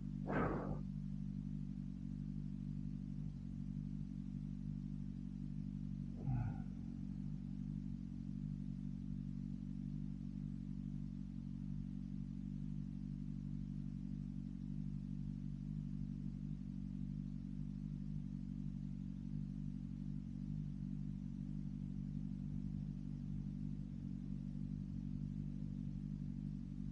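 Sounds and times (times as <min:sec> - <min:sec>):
motorcycle engine idling: 0:00.0 - 0:26.9
short sharp sound: 0:00.3 - 0:00.8.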